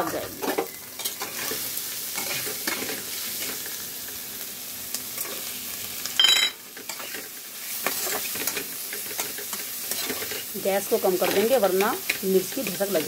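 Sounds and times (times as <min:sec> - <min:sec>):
low sizzle of frying: 0:00.0 - 0:13.0
spatula scraping a pan: 0:00.5 - 0:03.7, 0:06.8 - 0:10.5, 0:11.1 - 0:13.0.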